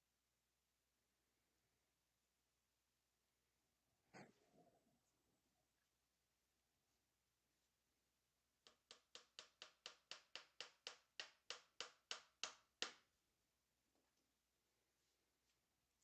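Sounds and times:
hammer tapping tack nail into wood: 0:08.7 - 0:13.1.

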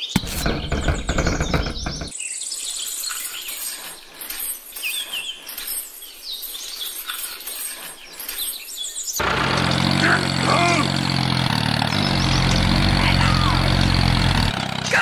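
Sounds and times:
birds chirping: 0:00.0 - 0:15.0
steady engine: 0:00.2 - 0:02.1, 0:09.2 - 0:15.0.

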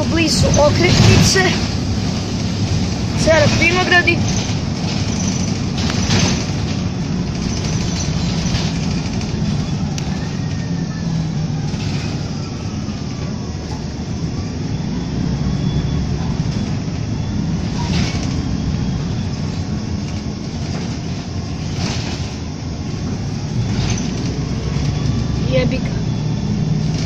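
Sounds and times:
bus body rattling knocks: 0:00.0 - 0:10.8, 0:17.6 - 0:25.3
bus engine drone: 0:00.0 - 0:27.0
road noise: 0:00.0 - 0:27.0.

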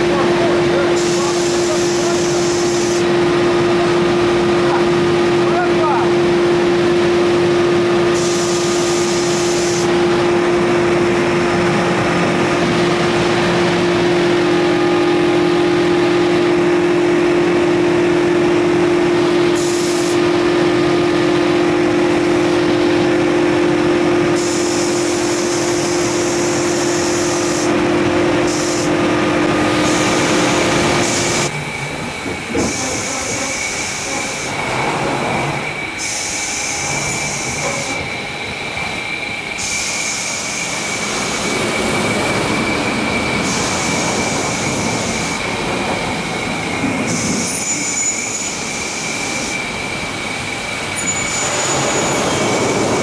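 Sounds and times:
water spray hissing: 0:28.5 - 0:29.0.

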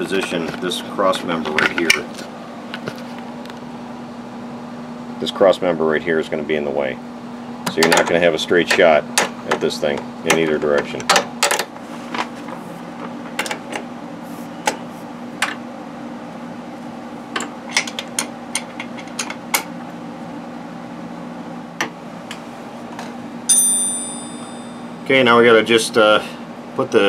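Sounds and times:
steady low hum: 0:00.0 - 0:27.0
ringing metal clink: 0:23.5 - 0:25.0.

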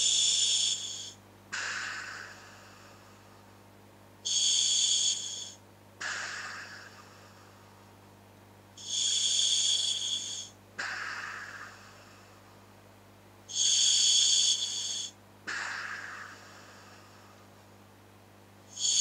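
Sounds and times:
regulator demand valve hiss: 0:00.0 - 0:02.6, 0:04.3 - 0:06.9, 0:08.8 - 0:11.7, 0:13.5 - 0:16.4, 0:18.7 - 0:19.0
person exhaling: 0:00.0 - 0:03.1, 0:04.3 - 0:07.6, 0:08.8 - 0:12.4, 0:13.5 - 0:17.5.

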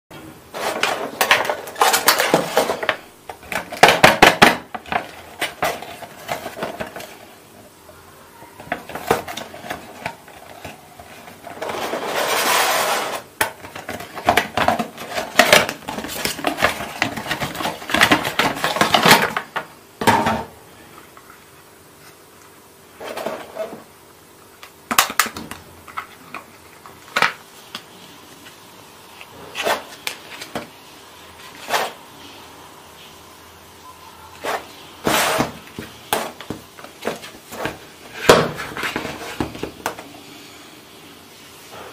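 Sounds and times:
scraping rub: 0:11.3 - 0:13.3.

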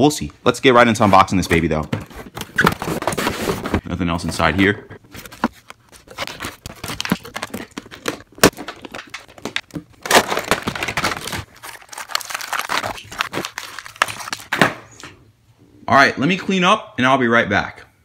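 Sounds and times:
cardboard and plastic rustling: 0:01.0 - 0:14.8.

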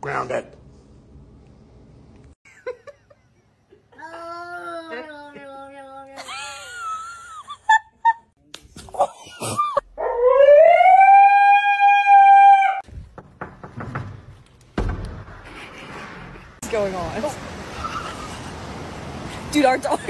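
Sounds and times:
husky howling: 0:10.0 - 0:12.8.

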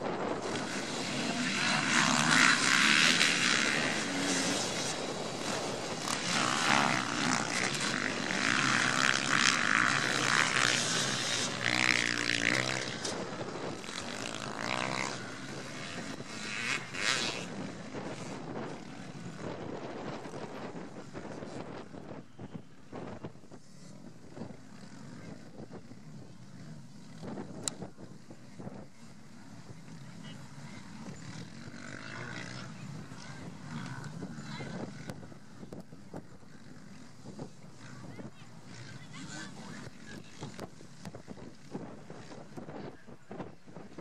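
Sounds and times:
bike engine revving through gears: 0:00.0 - 0:19.6, 0:29.7 - 0:38.0
motocross bikes accelerating: 0:00.0 - 0:44.0.

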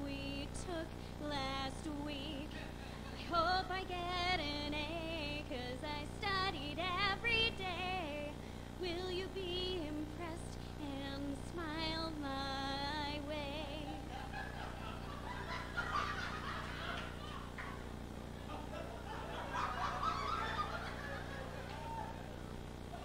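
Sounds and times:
woman singing with vibrato: 0:00.0 - 0:14.3
audience laughter: 0:13.8 - 0:22.5.

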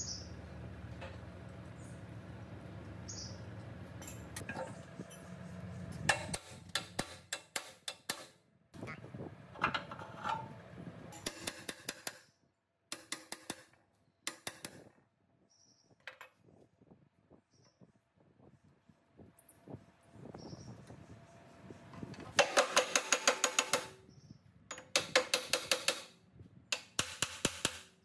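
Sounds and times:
low hum: 0:00.0 - 0:07.0
taps and clinks on metal: 0:06.1 - 0:08.3, 0:12.9 - 0:14.9, 0:24.7 - 0:26.1.

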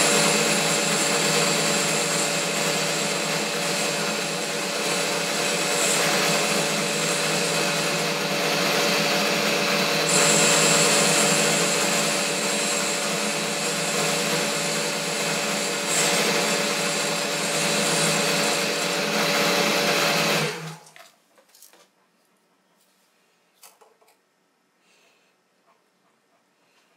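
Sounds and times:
lathe machine whine: 0:00.0 - 0:20.7.

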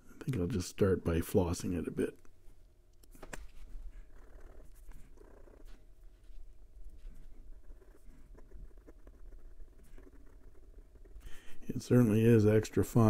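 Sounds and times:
pen nib scratching paper: 0:07.1 - 0:11.6.

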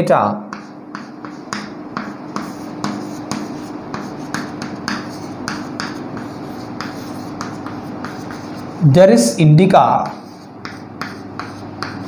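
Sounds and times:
chalk scratching on chalkboard: 0:00.5 - 0:12.0.

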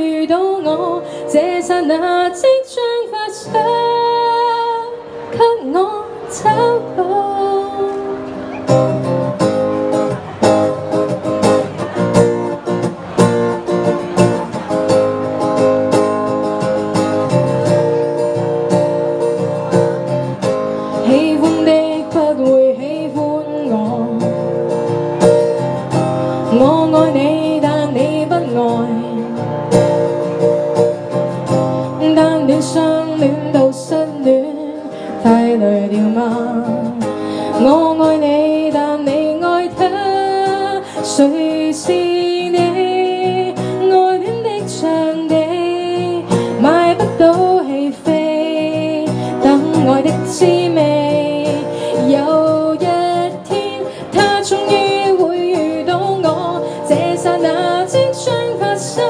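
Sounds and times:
woman singing pop ballad: 0:00.0 - 0:08.2, 0:20.9 - 0:24.6, 0:26.4 - 0:29.5, 0:31.9 - 0:59.0
acoustic guitar: 0:00.0 - 0:59.0.

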